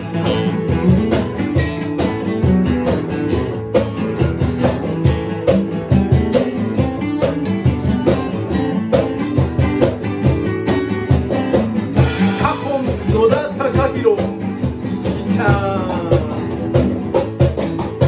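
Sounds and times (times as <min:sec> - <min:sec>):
cajon beat: 0:00.0 - 0:18.0
strummed guitars: 0:00.0 - 0:18.0
person singing: 0:12.1 - 0:17.1.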